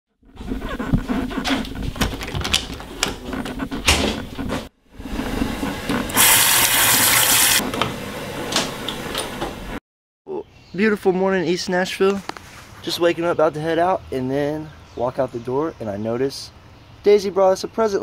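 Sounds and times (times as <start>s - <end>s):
faucet water running: 6.0s - 7.6s.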